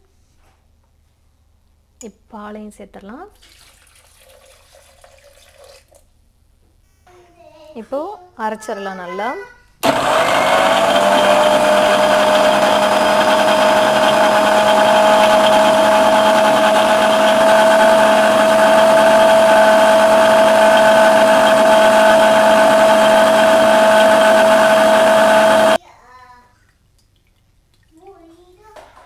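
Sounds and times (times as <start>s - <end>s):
mixer grinder motor whine: 9.8s - 25.8s.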